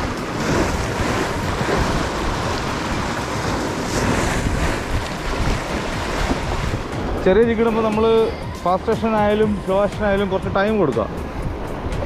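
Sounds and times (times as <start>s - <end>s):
waves breaking over rocks: 0.0s - 8.3s
wind buffeting microphone: 0.0s - 8.6s.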